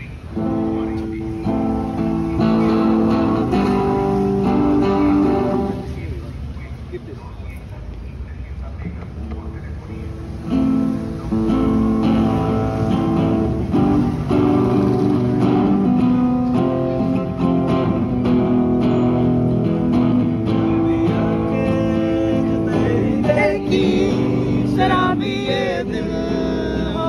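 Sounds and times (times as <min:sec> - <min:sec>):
acoustic guitar strumming chords: 0:00.0 - 0:06.1, 0:10.2 - 0:27.0.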